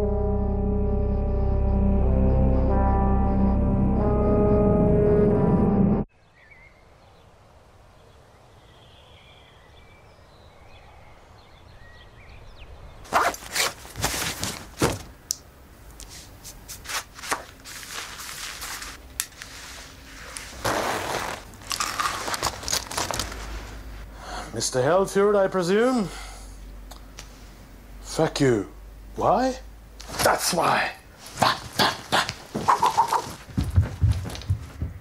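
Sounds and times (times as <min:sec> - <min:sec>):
irregular crunches and knocks: 0:13.1 - 0:15.2, 0:20.4 - 0:23.9, 0:31.2 - 0:35.0.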